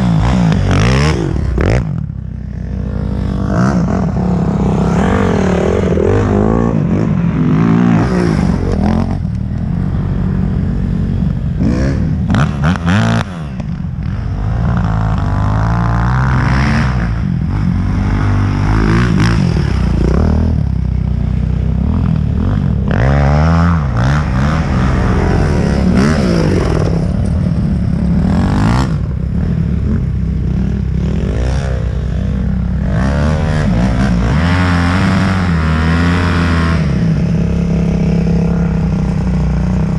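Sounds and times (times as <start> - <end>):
dirt bikes revving past: 0.0 - 39.9.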